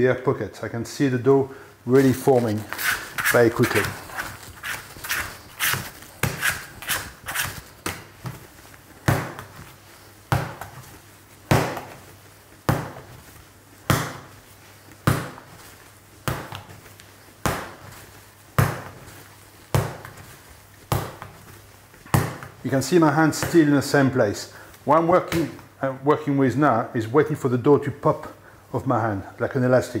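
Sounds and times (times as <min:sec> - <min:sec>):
dough slapping on wooden bench: 0:02.2 - 0:24.0.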